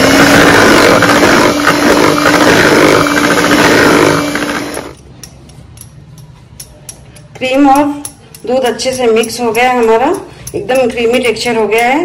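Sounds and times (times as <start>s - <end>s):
electric hand mixer running: 0.0s - 5.0s.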